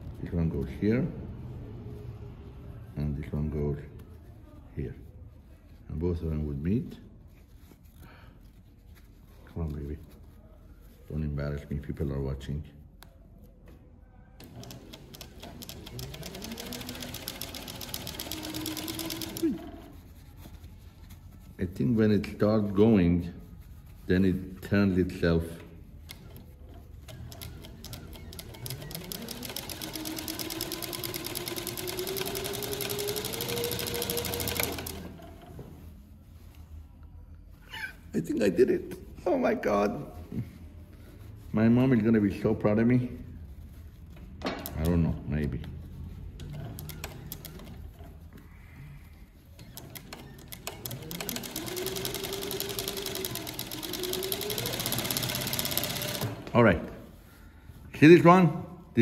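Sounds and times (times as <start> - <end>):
industrial sewing machine stitching: 14.4 - 19.9, 27.1 - 35.3, 46.4 - 47.8, 49.6 - 56.5.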